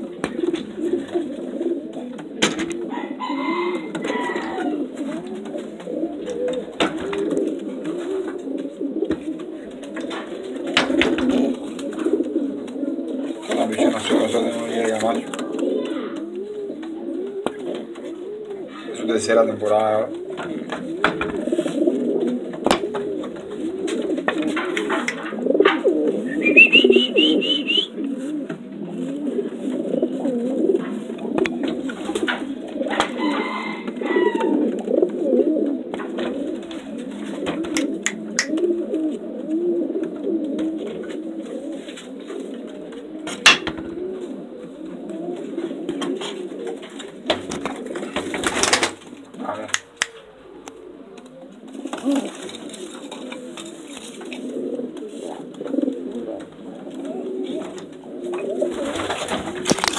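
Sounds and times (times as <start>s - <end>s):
pigeons cooing: 0.0s - 59.9s
sharp knocks: 22.6s - 23.4s, 43.4s - 44.0s.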